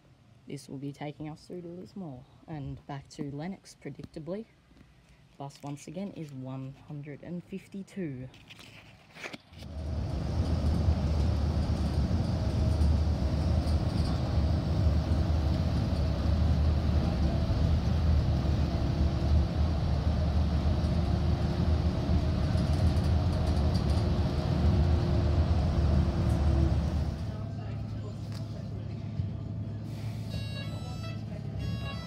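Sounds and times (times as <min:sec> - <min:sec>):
bus engine rumble: 0:09.6 - 0:32.0.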